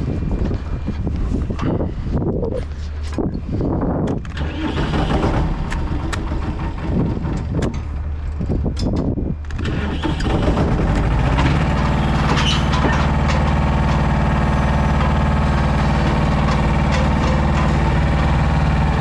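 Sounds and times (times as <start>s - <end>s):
diesel truck engine running: 0.0s - 19.0s
sharp clicks and knocks: 4.0s - 14.2s, 15.8s - 18.4s.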